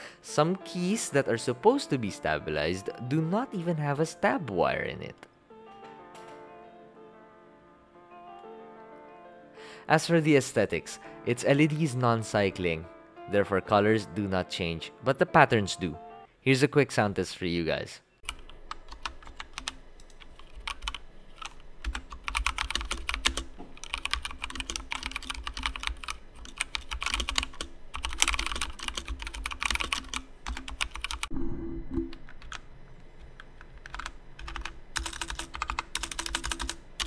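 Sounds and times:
mechanical keyboard typing: 18.3 - 31.3, 32.2 - 32.6, 33.3 - 37.0.

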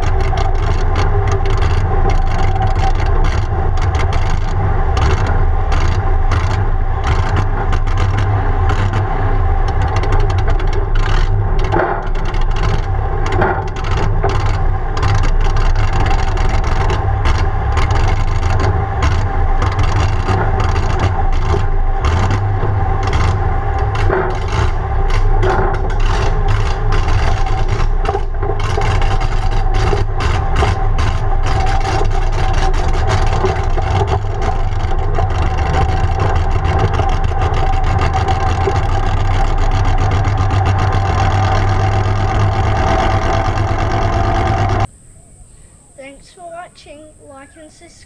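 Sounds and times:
dragster engine running: 0.0 - 44.9
exhaust crackle: 0.0 - 45.0.

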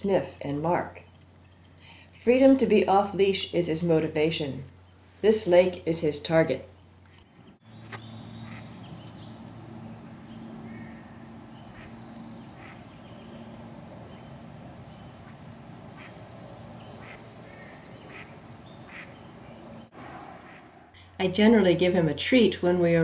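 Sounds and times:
steady low hum: 0.0 - 23.0
high bird chirps: 7.2 - 21.0
ducks quacking: 8.4 - 8.8, 11.6 - 13.0, 15.2 - 19.3, 20.4 - 20.9.

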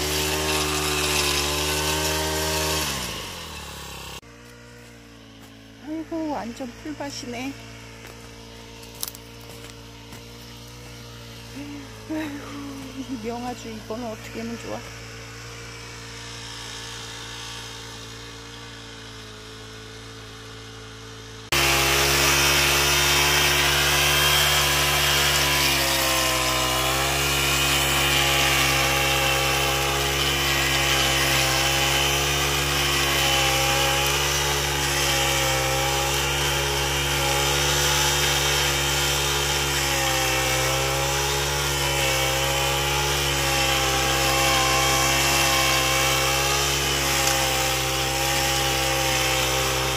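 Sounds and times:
brush cutter engine running: 0.0 - 49.9
tines churning through soil: 0.0 - 49.9.

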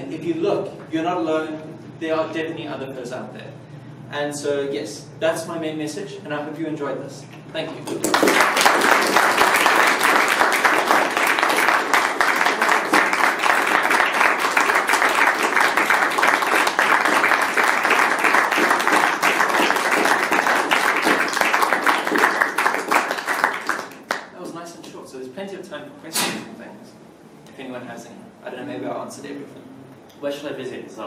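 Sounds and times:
audience applauding: 7.9 - 24.3.

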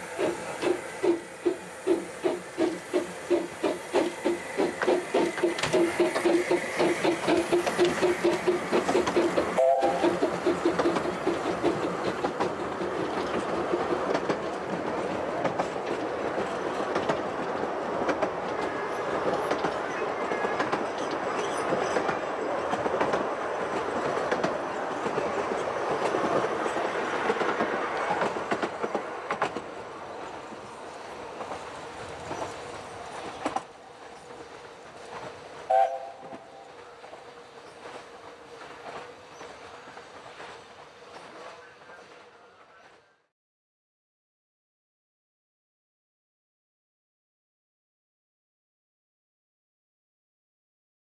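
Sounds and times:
steam train exhaust: 0.0 - 13.1, 30.7 - 42.8
wheels clattering over rail joints: 0.0 - 35.6
train whistle blast: 9.6 - 10.1, 35.7 - 36.4.

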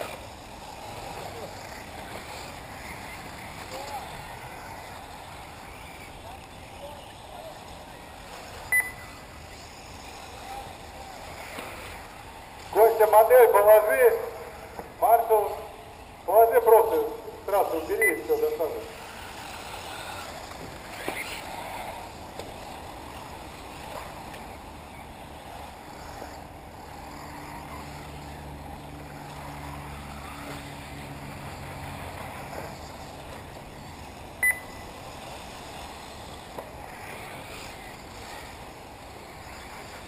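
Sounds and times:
electric rc buggies running: 0.0 - 40.0
short sharp beep: 8.7 - 9.0, 34.4 - 34.8.

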